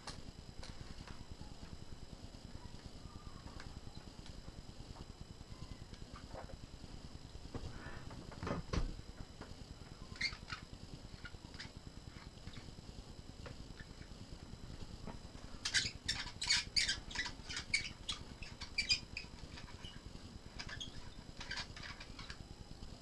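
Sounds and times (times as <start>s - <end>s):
plastic and metal squeaks and clicks: 10.1s - 11.8s, 15.6s - 20.0s, 20.6s - 22.4s.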